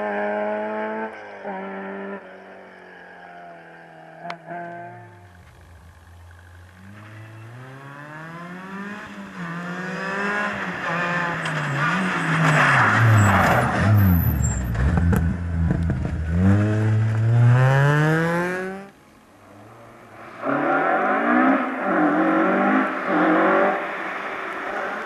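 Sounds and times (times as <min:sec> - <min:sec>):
rally car engine accelerating: 0:04.2 - 0:19.0.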